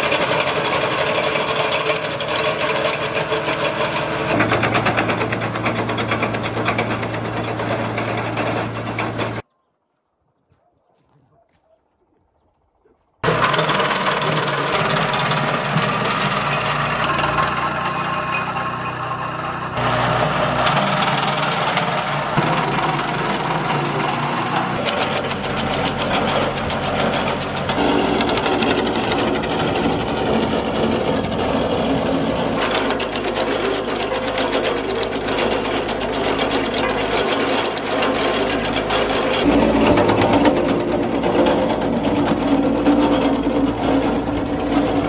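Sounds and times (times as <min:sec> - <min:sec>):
branch chipper rattling: 0:00.0 - 0:09.4, 0:13.2 - 0:45.0
cutter ticking: 0:19.8 - 0:29.2.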